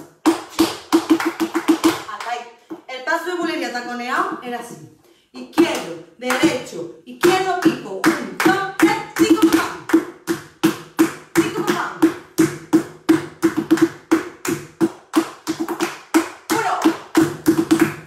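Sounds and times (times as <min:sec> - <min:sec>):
hand clapping: 0:00.0 - 0:02.4, 0:07.2 - 0:18.0
shoes stamping on wooden floor: 0:08.5 - 0:18.0.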